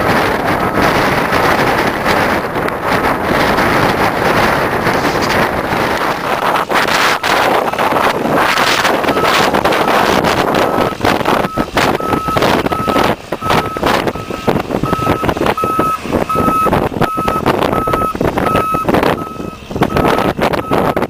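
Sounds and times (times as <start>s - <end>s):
engine running: 0.0s - 21.0s
wind buffeting microphone: 0.0s - 21.0s
reversing alarm beeping: 7.0s - 7.5s, 8.6s - 21.0s.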